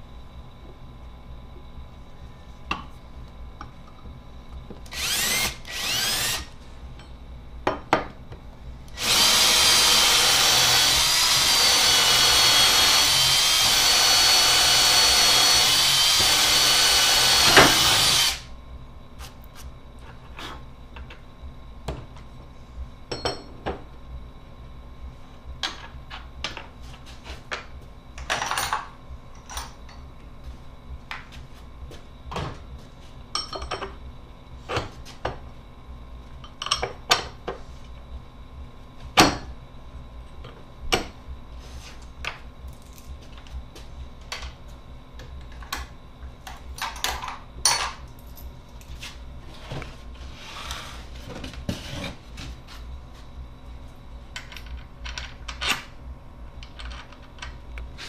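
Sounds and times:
steady low hum: 0.0 - 58.0
metal parts clinking and knocking: 56.6 - 57.5.

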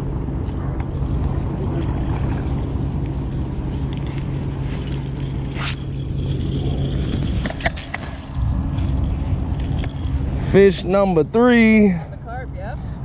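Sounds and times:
faint high reel whine: 0.0 - 12.9
steady low drone: 0.0 - 13.0
fishing reel cranking: 3.2 - 10.8
sharp scrape: 4.6 - 9.4.

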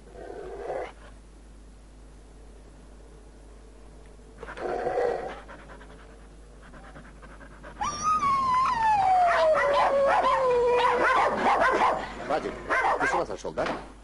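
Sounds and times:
dog whining: 7.6 - 12.1.

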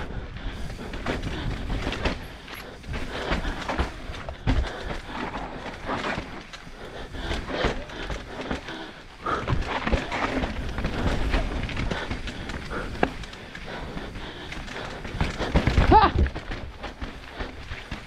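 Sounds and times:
bike clattering over rocks: 0.6 - 18.0.

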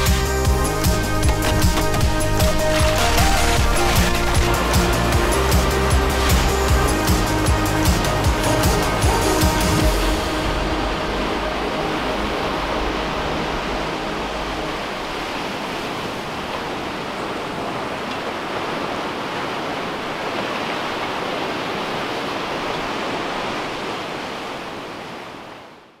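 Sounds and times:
background music: 0.0 - 15.6
sea surf breaking: 0.0 - 25.7.

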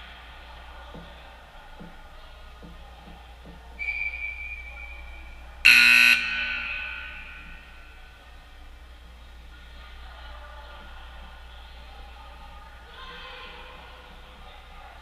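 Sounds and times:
high whistle blast: 3.8 - 7.8
electric horn blast: 5.7 - 7.8.

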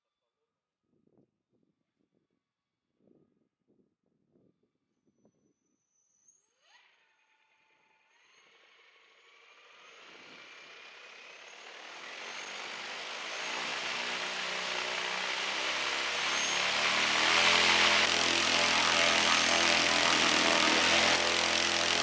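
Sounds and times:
electric motor whine: 9.6 - 22.0
propeller rushing noise: 10.5 - 22.0.

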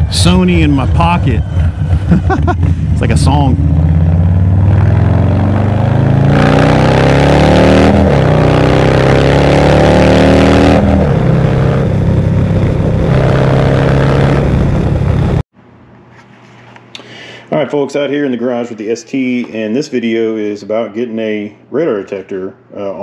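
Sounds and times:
motorcycle exhaust while riding: 0.0 - 15.4.

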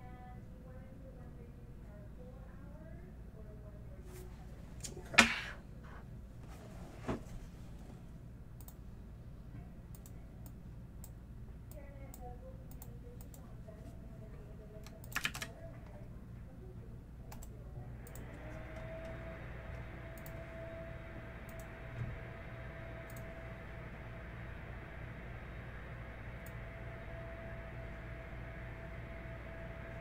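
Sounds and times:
steady low hum: 0.0 - 30.0
computer keyboard typing: 14.8 - 16.0, 20.1 - 20.4, 21.4 - 21.8, 23.0 - 23.3.

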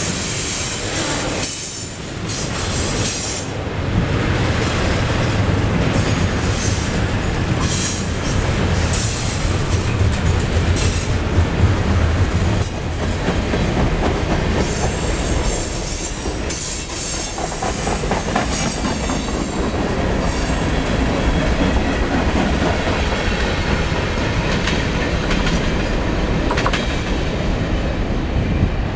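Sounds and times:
freight train wheels rumbling: 0.0 - 28.9.

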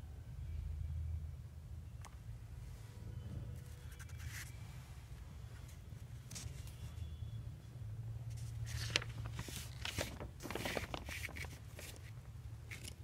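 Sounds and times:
paper rustling and crackling: 6.1 - 6.9, 8.3 - 13.0.

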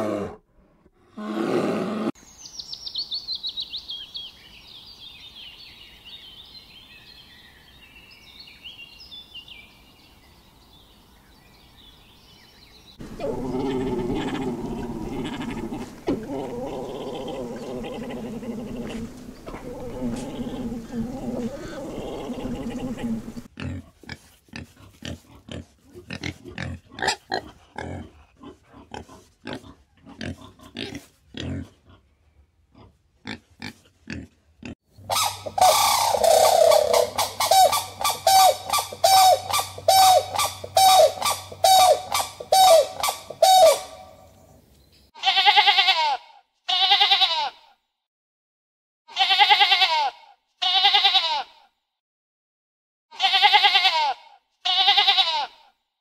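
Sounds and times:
loud animal calls: 13.0 - 23.5, 35.1 - 44.2
wavering bleats: 13.0 - 23.5, 45.2 - 47.7, 49.1 - 51.6, 53.1 - 55.7
pig grunting: 13.0 - 32.0.

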